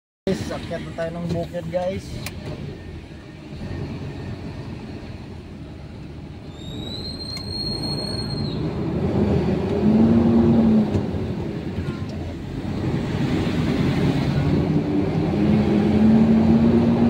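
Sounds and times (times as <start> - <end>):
road noise: 0.3 - 17.0
high thin squeal: 6.5 - 8.8.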